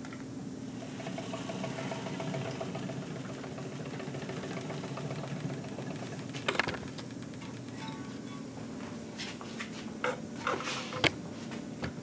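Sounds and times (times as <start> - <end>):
machine humming: 0.4 - 9.0.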